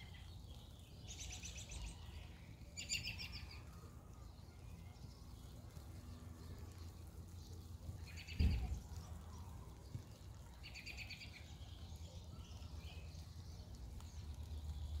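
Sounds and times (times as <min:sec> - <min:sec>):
low outdoor rumble: 0:00.0 - 0:15.0
dull low thump: 0:08.4 - 0:08.9.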